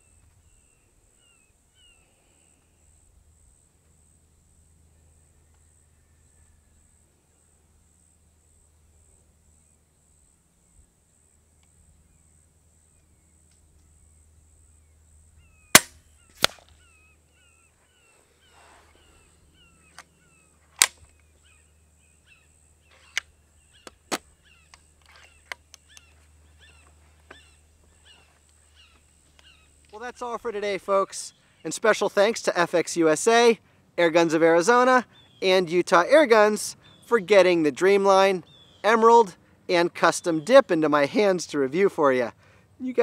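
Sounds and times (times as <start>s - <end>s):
high insect drone: 0.0s - 32.6s
birds chirping: 0.0s - 43.0s
air rifle shot crack: 15.7s - 16.8s.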